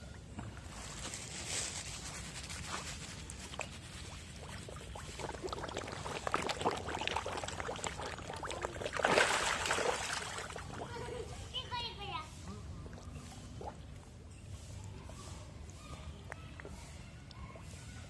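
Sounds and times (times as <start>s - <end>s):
koi splashing water: 2.8s - 11.3s.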